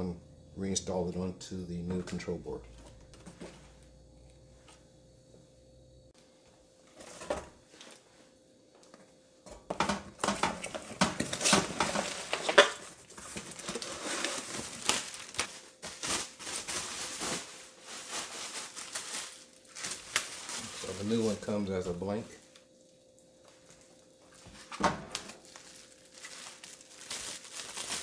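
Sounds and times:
bubble wrap rustling: 11.2 - 22.8, 23.5 - 28.0.

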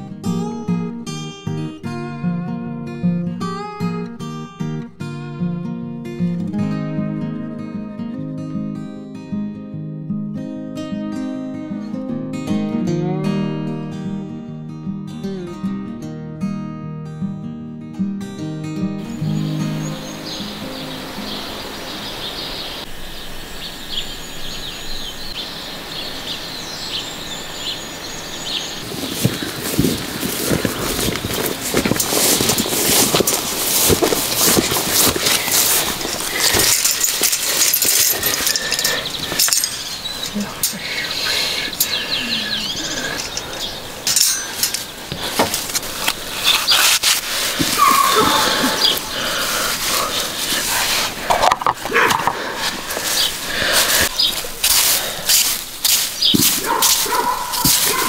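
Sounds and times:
steady outdoor hiss: 18.7 - 58.0
small birds chirping: 18.9 - 58.0
wire-mesh cage clinking: 28.8 - 49.1, 56.1 - 58.0.

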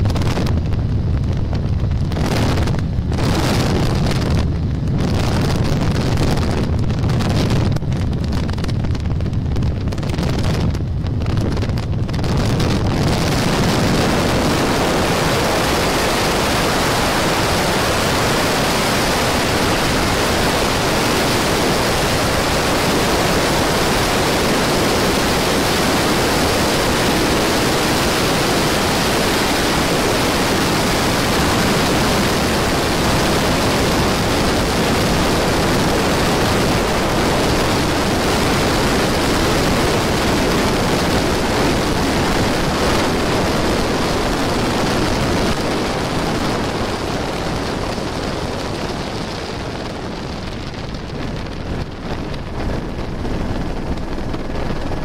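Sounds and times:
helicopter in flight hiss: 11.2 - 50.2, 50.9 - 55.0.

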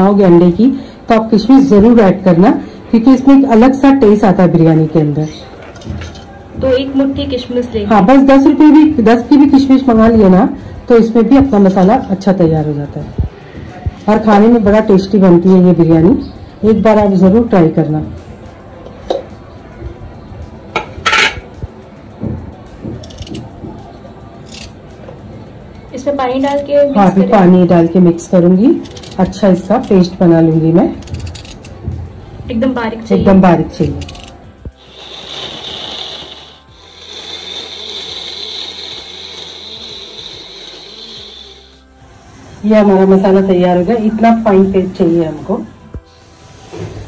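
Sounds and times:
mixer grinder whining: 34.7 - 41.9.

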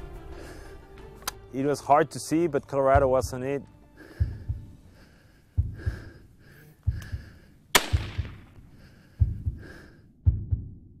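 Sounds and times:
breathing: 0.2 - 1.0, 4.0 - 7.8, 8.4 - 10.2
heartbeat double thumps: 3.0 - 3.4, 4.0 - 11.0
rifle shot: 7.7 - 8.6.

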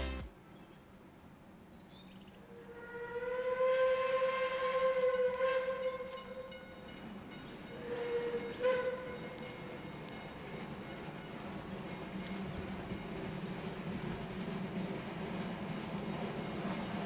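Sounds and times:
steam locomotive whistle: 2.5 - 6.5, 7.8 - 9.5.

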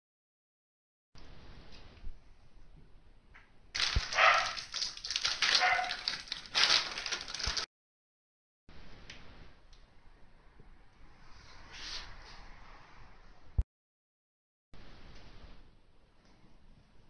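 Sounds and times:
plastic bag crinkling: 3.8 - 7.7.

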